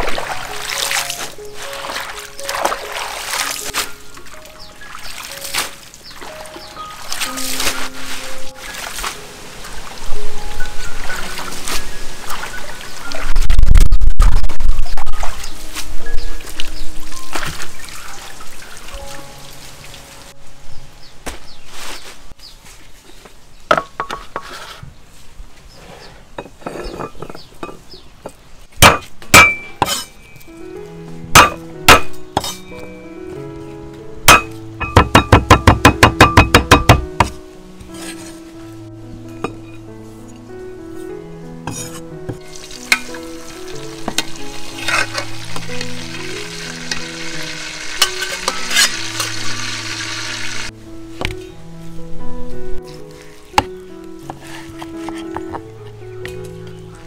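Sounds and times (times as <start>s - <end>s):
background music: 0.0s - 13.5s, 14.7s - 21.6s, 28.8s - 57.0s
knocks against a dish: 34.3s - 37.0s
food sizzling in a pan: 42.4s - 50.7s.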